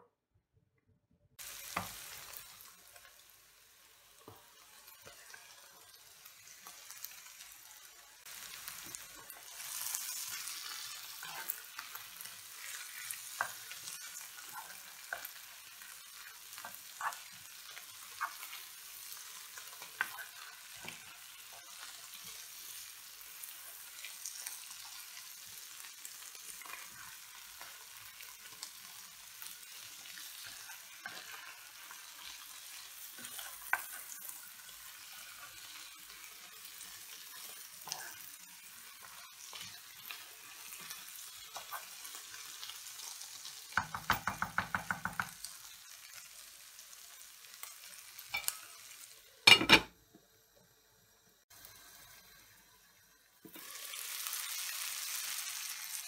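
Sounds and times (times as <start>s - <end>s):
vegetables sizzling in a frying pan: 1.4s - 56.0s
wooden spoon tapping and scraping pan: 18.1s - 18.6s, 33.2s - 34.2s, 43.8s - 45.4s.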